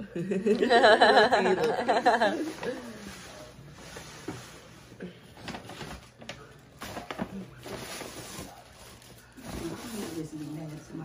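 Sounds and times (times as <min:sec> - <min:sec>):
paper bag rustling: 0:05.3 - 0:11.0.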